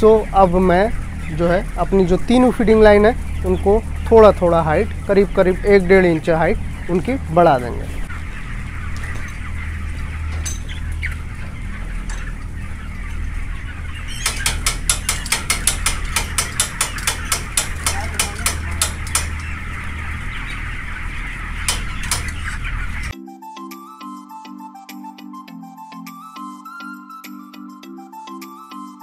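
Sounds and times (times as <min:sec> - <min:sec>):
ventilation fans humming: 0:00.0 - 0:23.1
chickens clucking: 0:00.0 - 0:23.2
fast sharp clicks: 0:14.2 - 0:19.4.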